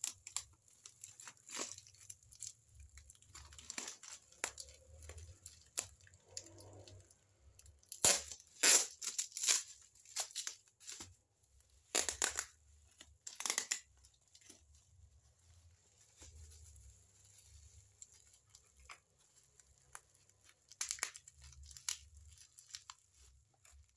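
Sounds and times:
plastic crinkling: 0.0 - 23.9
packing tape ripping: 7.8 - 11.1, 11.8 - 12.6, 13.2 - 14.5.

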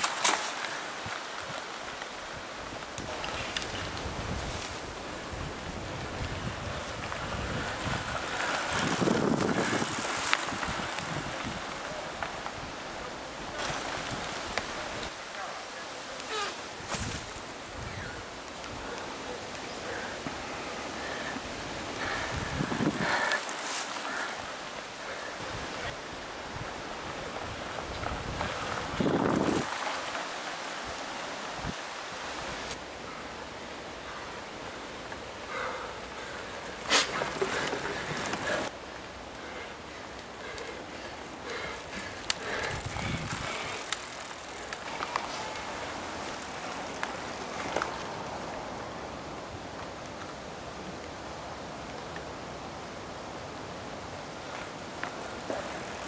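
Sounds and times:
bike clicks and rattles: 0.0 - 2.1, 40.2 - 48.3
mountain bikes riding past: 0.0 - 56.0
steady hiss: 0.0 - 56.0
wind noise on microphone: 2.3 - 12.8, 16.8 - 19.0, 21.5 - 23.4, 25.4 - 29.9, 41.5 - 46.2.

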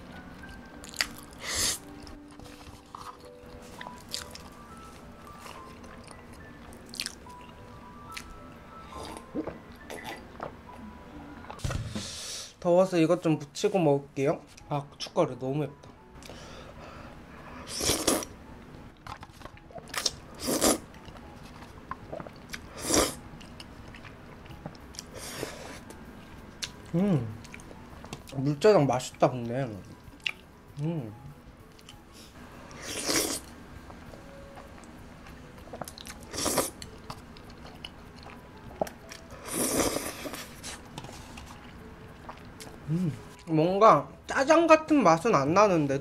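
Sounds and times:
slurping noodles: 17.7 - 18.3, 20.4 - 20.8, 22.8 - 23.2, 32.8 - 33.5, 36.3 - 36.8, 39.4 - 40.8.

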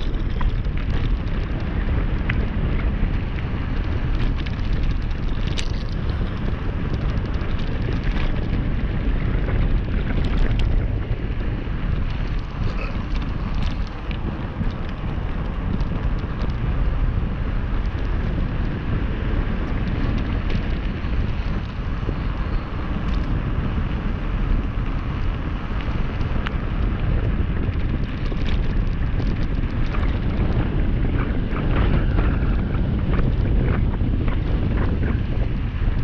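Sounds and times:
bike tyres crunching on gravel: 0.0 - 36.0
stones and bike clicking and rattling: 0.0 - 36.0
wind rushing on microphone: 0.0 - 36.0.

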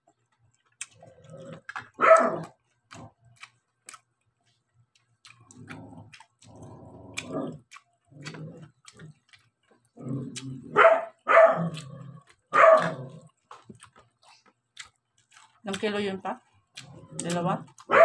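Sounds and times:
dog barking: 2.0 - 2.5, 10.7 - 11.8, 12.5 - 13.0, 17.8 - 18.0.

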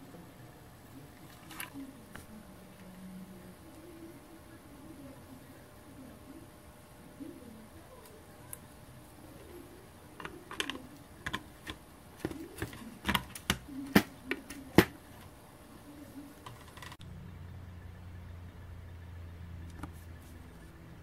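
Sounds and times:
plastic clicks and taps: 10.2 - 15.0.

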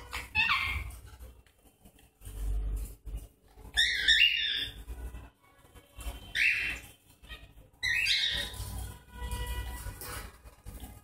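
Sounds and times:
parrots squawking: 0.0 - 1.0, 3.6 - 4.9, 6.0 - 9.0.

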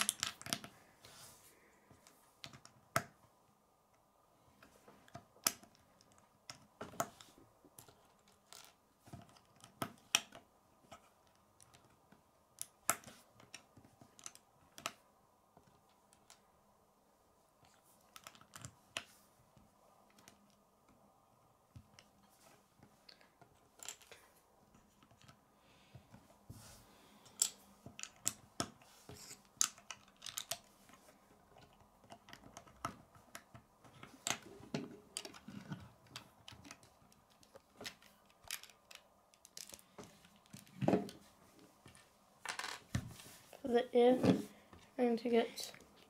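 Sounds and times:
plastic bricks clicking: 0.0 - 0.7, 23.1 - 24.2, 27.3 - 30.7, 31.6 - 40.8.

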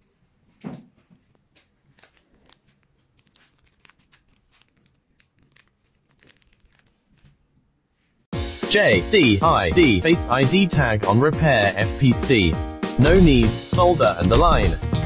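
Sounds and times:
plastic bags crinkling: 1.7 - 7.5.

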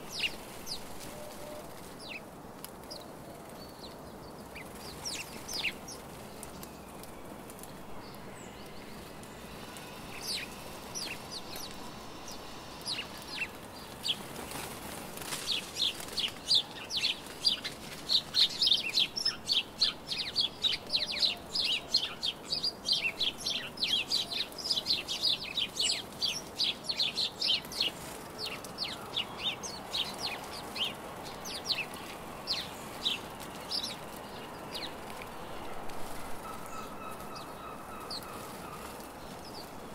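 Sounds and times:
wings fluttering: 0.0 - 3.7, 4.4 - 7.9, 8.9 - 19.9, 24.4 - 39.9
sparrows chirping: 0.0 - 39.9.

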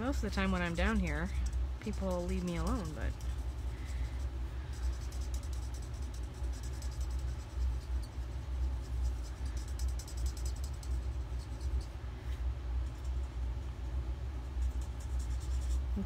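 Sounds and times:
furnace rumbling: 0.0 - 16.0
marker scratching on paper: 0.4 - 11.9.

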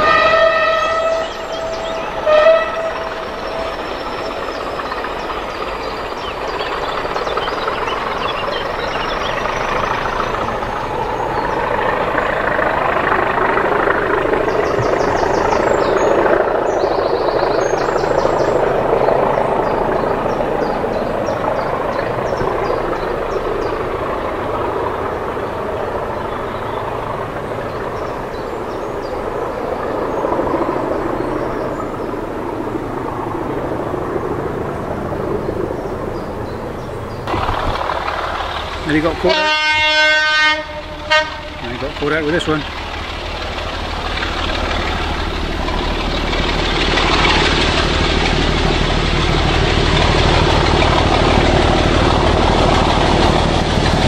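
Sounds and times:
locomotive horn: 0.0 - 4.5, 38.9 - 42.4
diesel locomotive engines: 0.0 - 54.0.

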